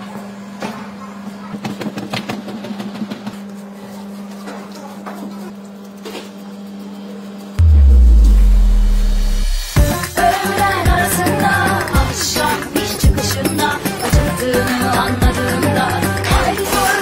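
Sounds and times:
steady low hum: 0:07.6 - 0:10.0
loud music: 0:07.6 - 0:13.3.

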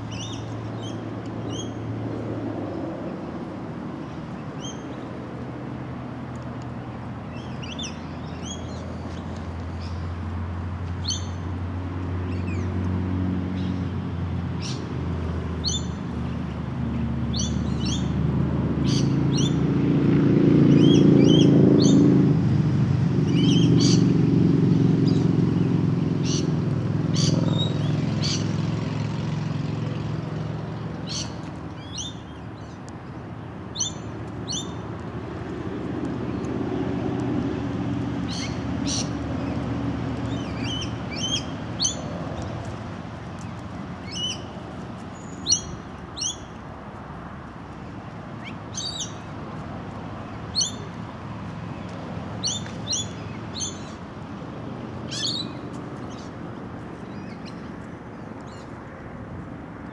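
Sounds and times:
small birds chirping: 0:00.0 - 0:01.9, 0:07.3 - 0:10.1, 0:30.6 - 0:35.2, 0:38.2 - 0:46.6, 0:47.7 - 0:54.1, 0:55.0 - 0:58.9
distant engine drone: 0:00.0 - 0:59.9.

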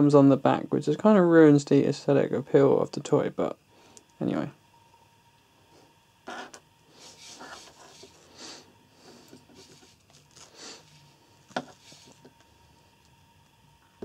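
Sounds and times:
hands rubbing plastic toy: 0:06.4 - 0:08.3, 0:09.1 - 0:12.3.

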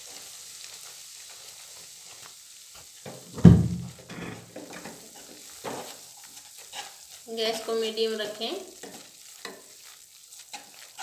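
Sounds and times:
flour sizzling in hot oil: 0:00.0 - 0:03.4, 0:04.0 - 0:11.0
wooden spatula scraping pan: 0:03.1 - 0:11.0
loud clunk: 0:03.3 - 0:04.5.

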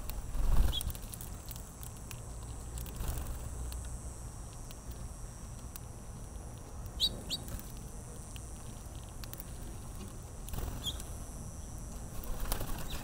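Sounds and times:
birds pecking seed clicks: 0:00.0 - 0:13.0
high bird chirp: 0:07.0 - 0:07.5, 0:10.8 - 0:11.1.

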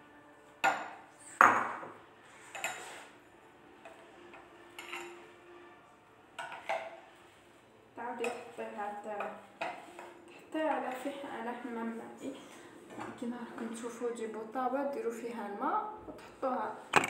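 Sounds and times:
spoon clinking against glass bowl: 0:04.8 - 0:05.3.

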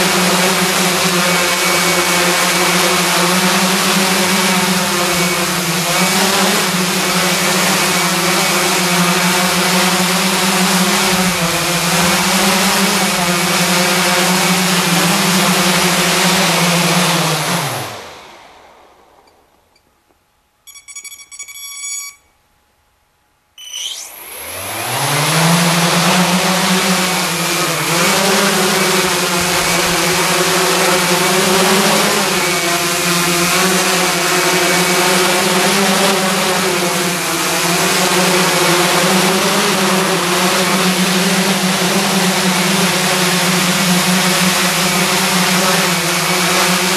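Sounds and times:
drone motors whining down: 0:00.0 - 0:19.9, 0:23.6 - 0:46.9
high electronic beeps: 0:20.7 - 0:22.3, 0:23.6 - 0:24.2.

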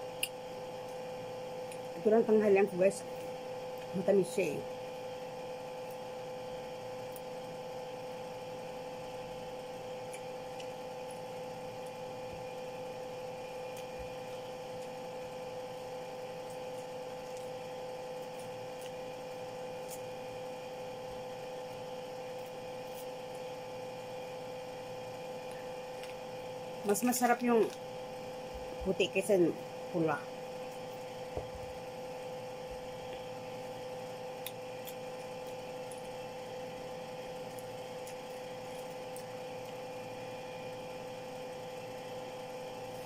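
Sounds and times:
electrical hum: 0:00.0 - 0:43.0.

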